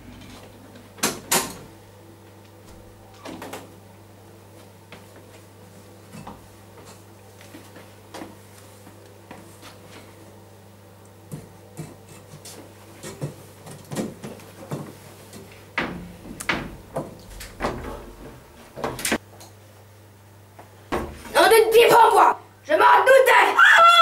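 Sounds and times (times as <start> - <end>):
steady low hum: 0.0 - 22.7
metal chair knocking and scraping: 15.8 - 19.2.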